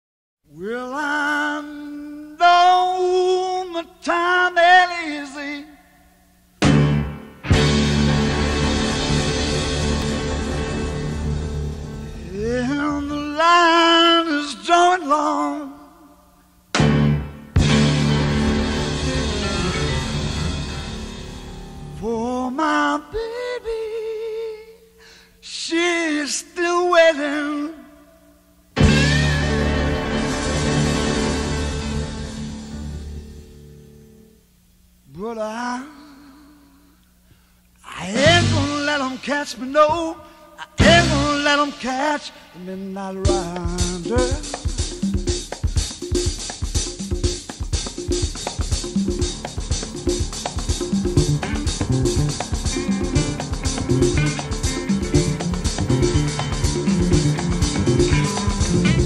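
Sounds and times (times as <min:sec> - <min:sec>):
band music: 0:06.6 - 0:14.4, 0:16.7 - 0:23.3, 0:28.8 - 0:34.3, 0:38.2 - 0:59.0
person singing unaccompanied: 0:12.2 - 0:16.2, 0:21.9 - 0:28.2, 0:37.8 - 0:59.0.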